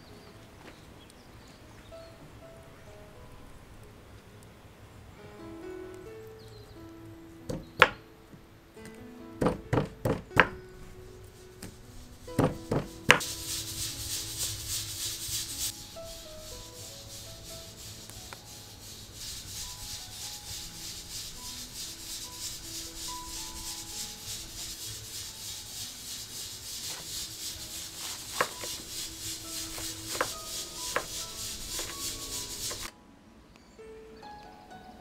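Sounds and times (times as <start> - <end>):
pulsing high hiss: 10.4 - 32.9.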